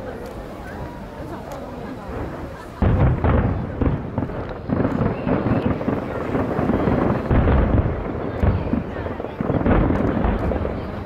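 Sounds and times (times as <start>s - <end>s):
fireworks booming: 1.8s - 11.0s.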